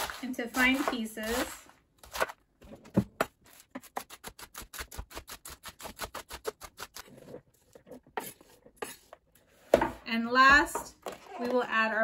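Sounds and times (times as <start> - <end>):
knife chopping lettuce on wood: 0.0 - 1.5.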